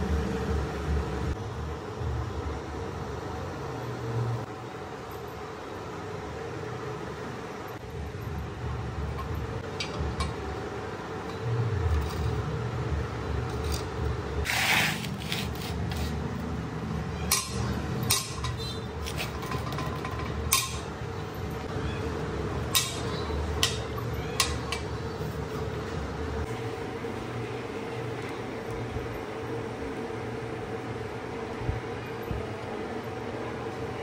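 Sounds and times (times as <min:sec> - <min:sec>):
steady background hum: 0:00.0 - 0:34.0.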